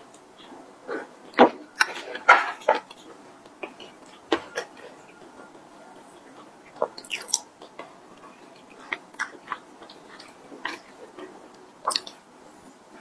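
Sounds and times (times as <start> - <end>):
close chewing: 0.1 - 12.6
wet mouth clicks: 11.8 - 12.2.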